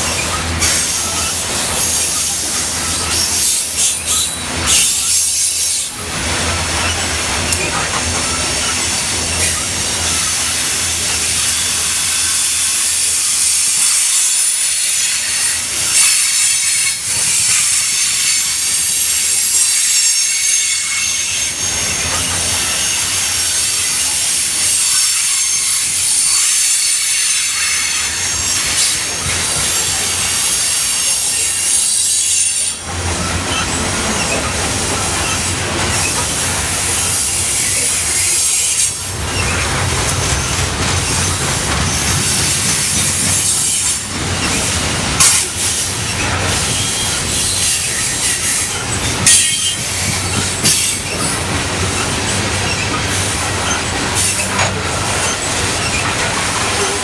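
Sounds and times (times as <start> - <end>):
freight train wheels clattering: 0.0 - 57.0
high-pitched wheel squeal: 0.1 - 5.9.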